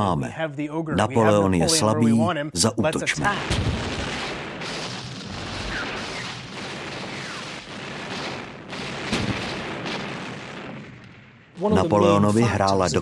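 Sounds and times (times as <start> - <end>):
continuous gunfire: 3.2 - 11.3
sharp gunshot: 3.3 - 11.2
cannon firing: 3.3 - 11.6.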